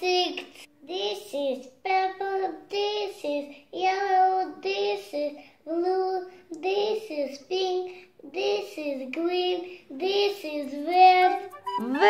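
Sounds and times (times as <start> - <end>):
girl singing: 6.8 - 12.0.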